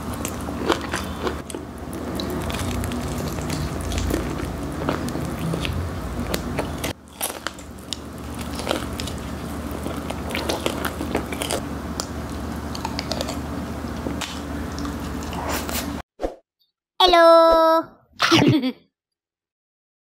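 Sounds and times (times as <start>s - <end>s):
crunchy chewing of fried chicken: 0.0s - 16.0s.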